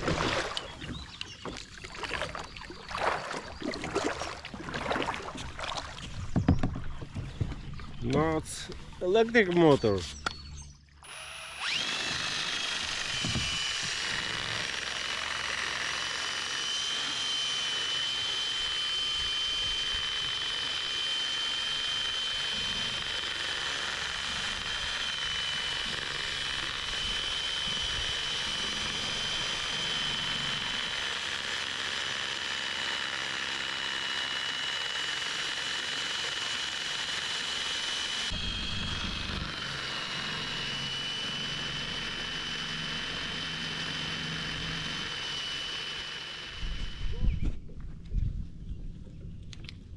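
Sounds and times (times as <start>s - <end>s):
cordless drill whine: 10.0s - 47.6s.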